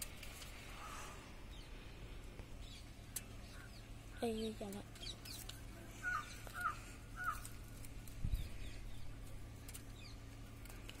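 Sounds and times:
bird calling: 2.6 - 7.7.

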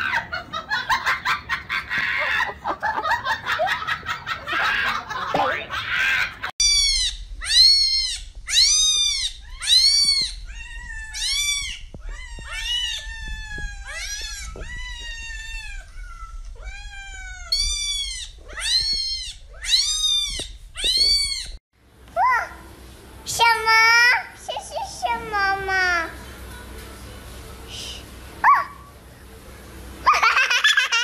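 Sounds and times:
cats meowing: 5.7 - 21.6.

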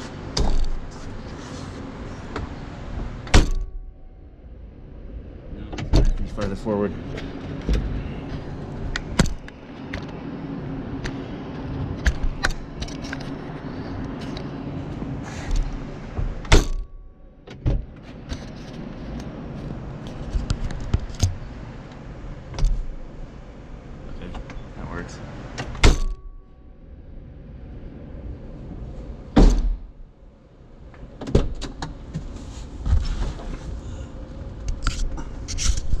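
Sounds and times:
car door shutting thud: 29.4 - 29.9.

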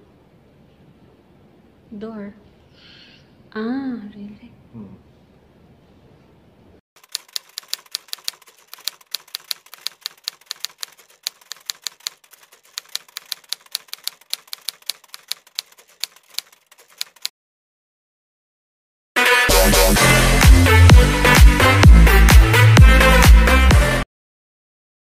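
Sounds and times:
typewriter key clicks: 7.0 - 17.3.

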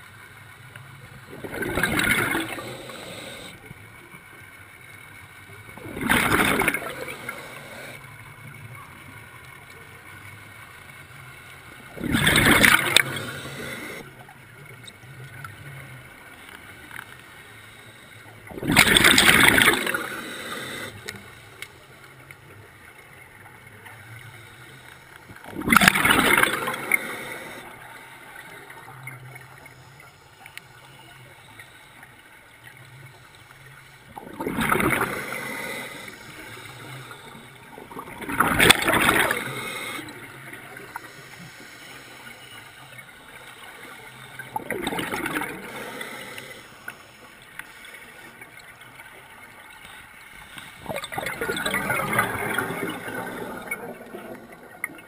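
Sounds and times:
exhaled air bubbles underwater: 1.2 - 3.6, 5.8 - 8.0, 11.9 - 14.1, 18.5 - 21.1, 25.4 - 29.3, 34.1 - 41.0, 43.6 - 46.5, 50.8 - 55.0.

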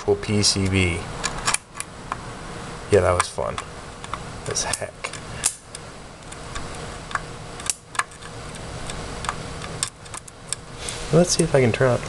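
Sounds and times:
electrical clicks and snaps: 3.0 - 10.7
low hiss: 8.6 - 12.0.

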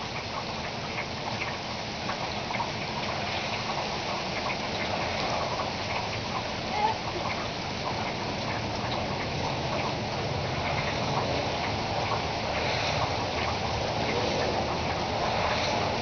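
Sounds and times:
heavy rain on pavement: 0.0 - 16.0.

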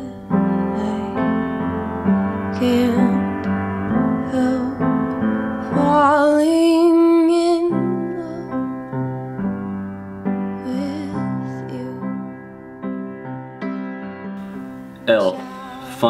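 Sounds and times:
person singing: 0.0 - 1.4, 2.6 - 3.3, 4.2 - 4.8, 10.6 - 12.1, 15.1 - 16.0
piano chords: 0.0 - 16.0.

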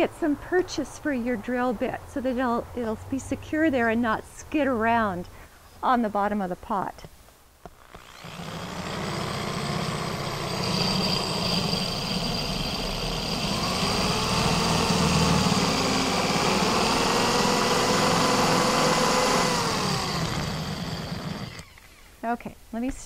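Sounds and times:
drill grinding into ceramic: 7.7 - 22.2.

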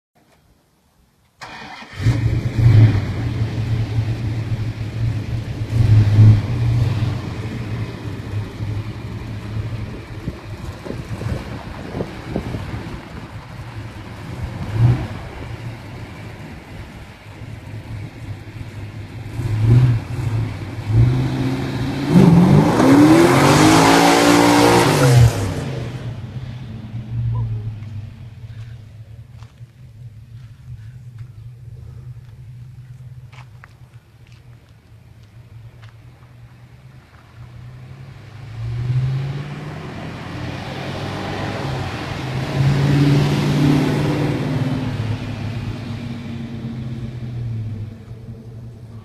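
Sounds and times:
car engine idling and revving: 1.4 - 49.0.

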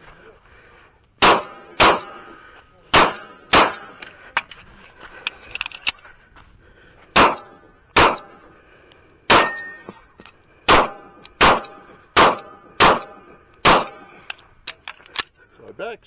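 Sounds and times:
pistol shots: 1.2 - 4.1, 7.2 - 8.4, 9.3 - 9.8, 10.7 - 14.3.

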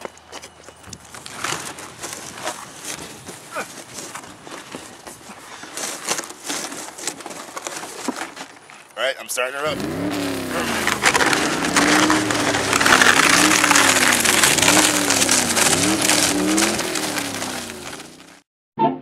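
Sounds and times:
car engine revving: 9.6 - 18.3.

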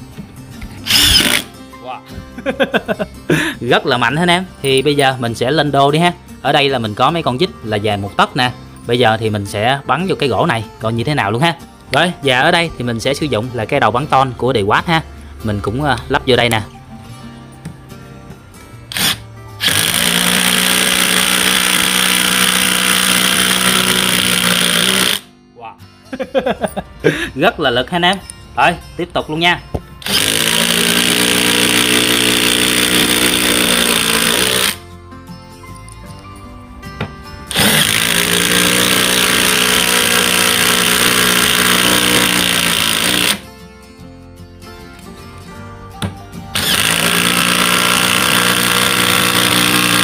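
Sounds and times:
impact wrench hammering: 0.8 - 1.5, 18.9 - 25.3, 30.0 - 34.8, 37.0 - 43.4, 46.0 - 50.0.

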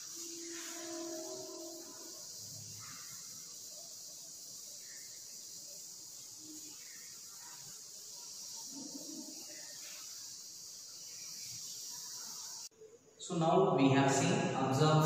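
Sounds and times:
chalk writing on blackboard: 0.0 - 12.4
steady high-pitched hiss: 0.0 - 15.0.

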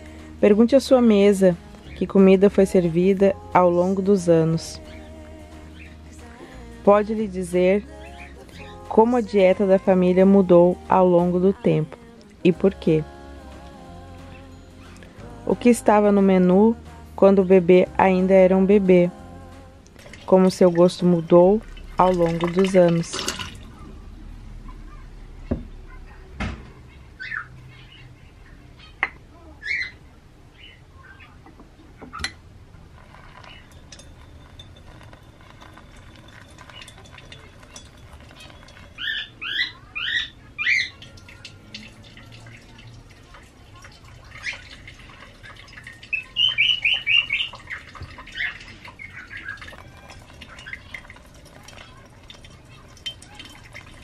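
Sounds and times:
bird chirping: 3.9 - 6.5, 19.9 - 32.3, 33.2 - 43.0, 43.8 - 52.0
water trickling onto coffee: 19.8 - 23.8, 32.7 - 54.0.

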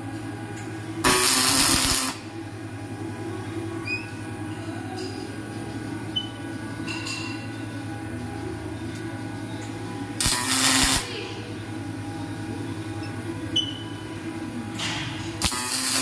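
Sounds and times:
steady low hum: 0.0 - 16.0
welding arc crackling hiss: 1.0 - 2.3, 10.2 - 11.1, 15.2 - 16.0.

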